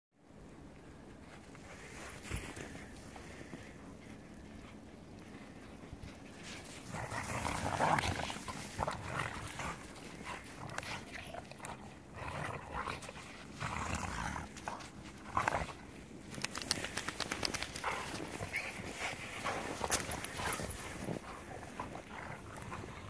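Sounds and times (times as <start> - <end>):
dogs play growling: 1.1 - 23.0.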